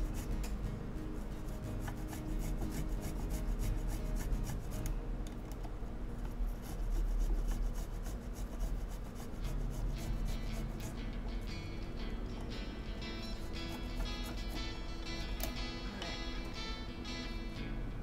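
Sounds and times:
ginger rasping on a grater: 1.5 - 4.8, 6.5 - 11.1, 13.3 - 14.7.

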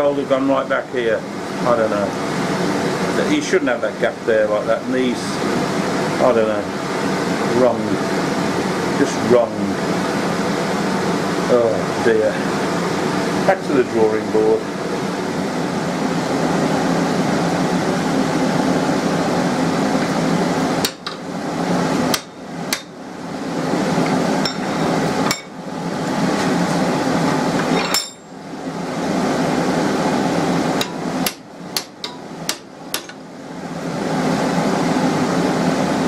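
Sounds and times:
hammer striking metal: 22.1 - 22.9, 27.8 - 28.3, 30.8 - 33.2.

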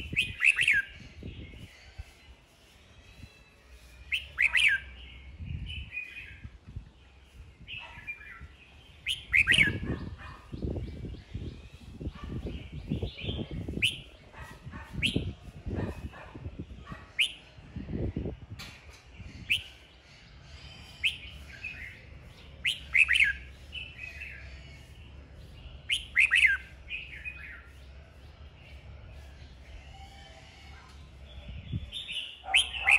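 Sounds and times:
bird whistled song and chirps: 0.0 - 2.2, 3.0 - 6.6, 7.6 - 17.5, 19.2 - 19.9, 20.7 - 27.9, 31.3 - 32.9.

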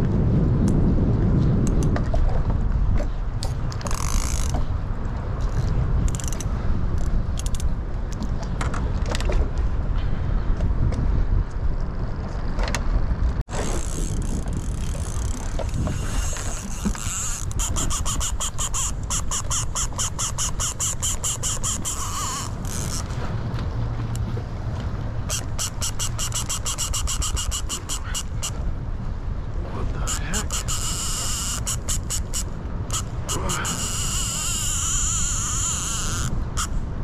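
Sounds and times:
fishing reel clicking: 3.8 - 4.6, 6.1 - 6.5, 7.4 - 7.7, 13.5 - 23.1, 25.3 - 28.6, 30.1 - 36.8.

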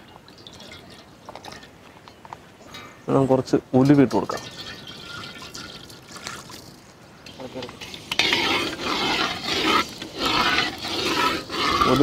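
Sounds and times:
ladle scraping seeds in hot oil: 3.9 - 12.0.

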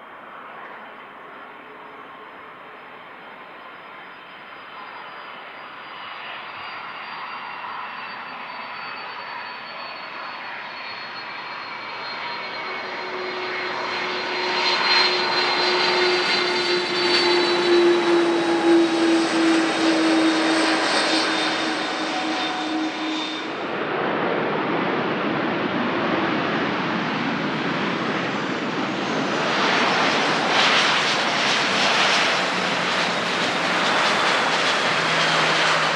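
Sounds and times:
jet engines whining: 1.9 - 35.9.

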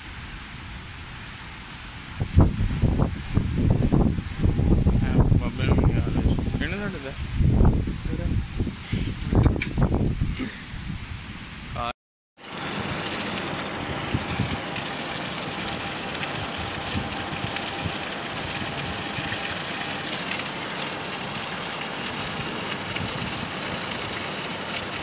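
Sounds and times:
heavy rain pouring: 12.4 - 25.0.

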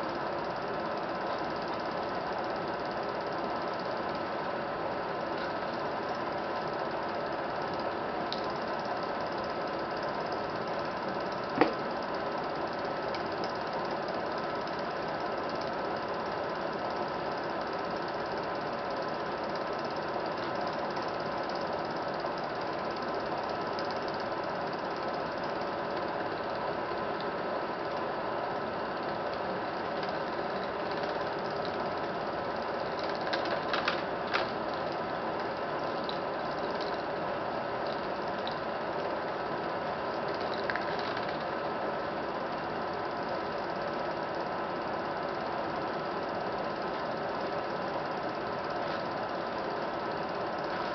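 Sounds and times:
film projector running: 0.0 - 50.9
projector clicks: 7.6 - 8.7, 11.3 - 12.1, 29.0 - 37.1, 37.8 - 39.1.

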